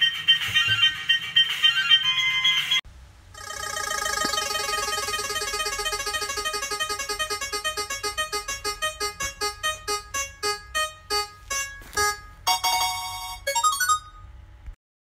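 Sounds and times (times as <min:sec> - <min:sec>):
plinking notes: 0:04.1 - 0:14.3.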